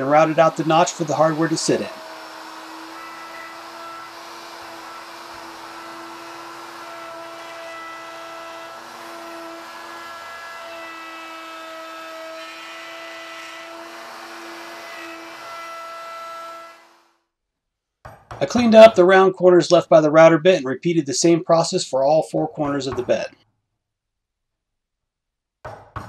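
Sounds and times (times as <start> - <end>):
router whining cutting wood: 0.0 - 17.1.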